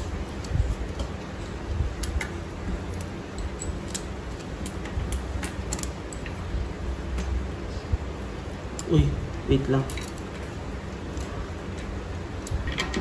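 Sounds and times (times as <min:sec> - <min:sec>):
metal cogs clicking and clinking: 0:09.8 - 0:10.4, 0:12.4 - 0:13.0.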